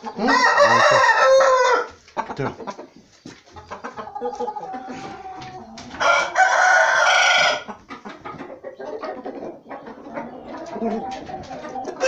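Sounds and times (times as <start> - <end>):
chicken clucking: 0.0 - 12.0
rooster crowing: 0.2 - 1.9, 6.0 - 7.7.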